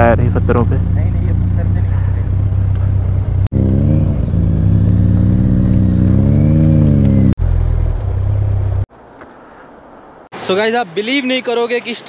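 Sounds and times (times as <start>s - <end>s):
motorcycle engine revving: 0.0s - 8.9s.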